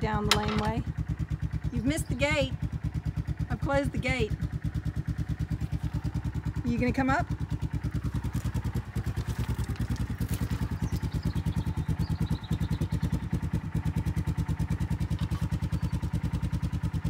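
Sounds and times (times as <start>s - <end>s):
quad bike engine idling: 0.0s - 17.0s.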